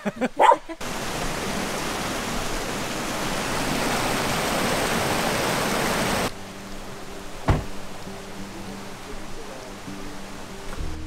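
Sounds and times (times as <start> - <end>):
river rushing over weir: 0.8 - 11.0.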